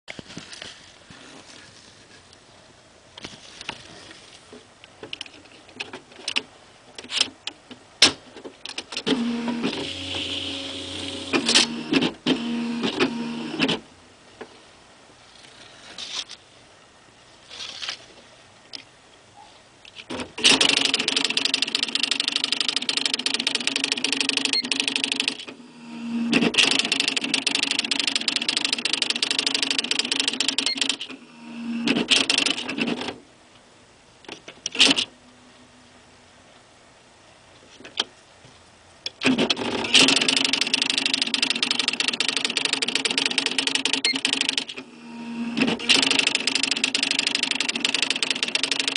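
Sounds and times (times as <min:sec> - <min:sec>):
typewriter carriage clicks: 0:20.1 - 0:25.5, 0:26.4 - 0:31.1, 0:39.2 - 0:44.8, 0:45.6 - 0:48.9
typewriter rapid print strikes: 0:20.4 - 0:25.5, 0:26.2 - 0:31.1, 0:31.8 - 0:33.2, 0:39.2 - 0:44.8, 0:45.6 - 0:48.9.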